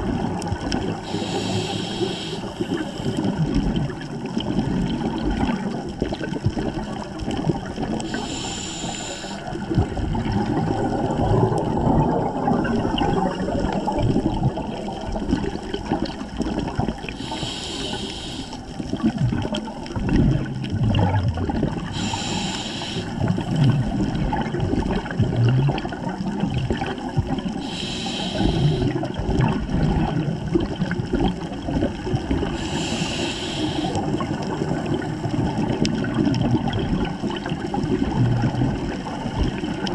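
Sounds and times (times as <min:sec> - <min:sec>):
gurgle of exhaled bubbles: 0:00.0 - 0:39.9
regulator hissing on inhale: 0:01.0 - 0:03.3, 0:08.0 - 0:09.7, 0:17.1 - 0:18.8, 0:21.9 - 0:23.3, 0:27.6 - 0:29.1, 0:32.4 - 0:34.2.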